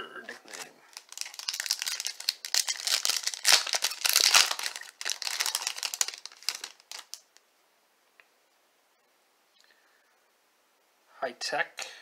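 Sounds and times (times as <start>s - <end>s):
foil wrapper crinkling: 0.3s - 7.3s.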